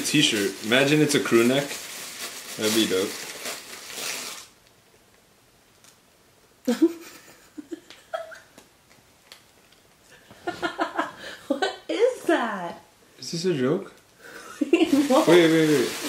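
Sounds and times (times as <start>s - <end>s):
paper wrapping crinkling and tearing: 0.0s - 4.6s, 14.8s - 16.0s
person's voice: 14.9s - 16.0s.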